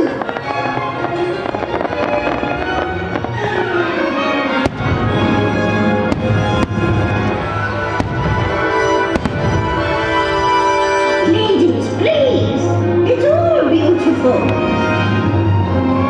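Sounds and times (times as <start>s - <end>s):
firework shells bursting: 0.0s - 3.4s, 4.6s - 10.7s
fireworks show music: 0.0s - 16.0s.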